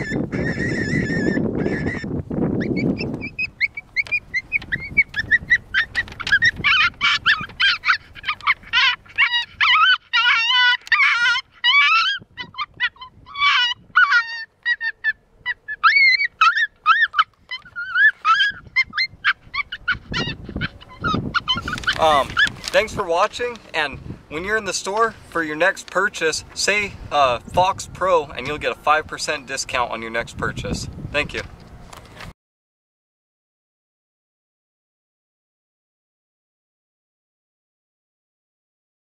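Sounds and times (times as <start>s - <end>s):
coyote pup yelps through speaker: 0.0s - 22.8s.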